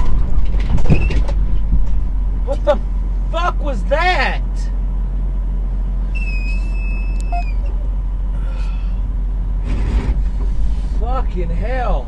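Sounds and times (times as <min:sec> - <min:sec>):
vehicle rumble from inside cab: 0:00.0 - 0:12.0
high steady beep: 0:06.2 - 0:07.7.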